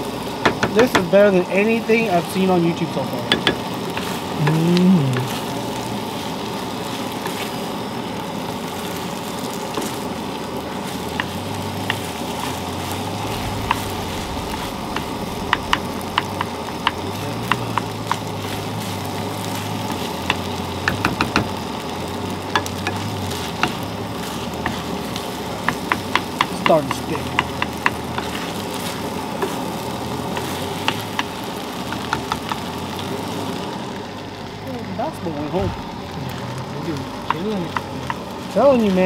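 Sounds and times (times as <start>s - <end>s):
fried rice sizzling in a skillet: 0.0s - 39.0s
wooden spatula scraping a pan: 22.5s - 32.7s.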